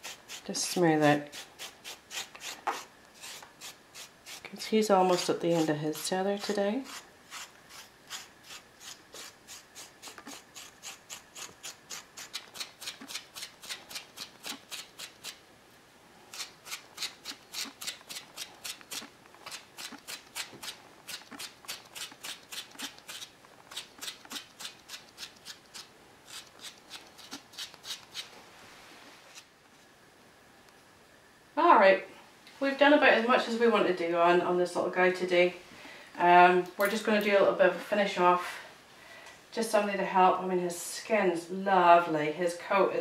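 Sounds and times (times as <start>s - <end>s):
grooming stone rasping on dog coat: 0.0s - 0.6s, 1.2s - 15.4s, 16.3s - 28.3s.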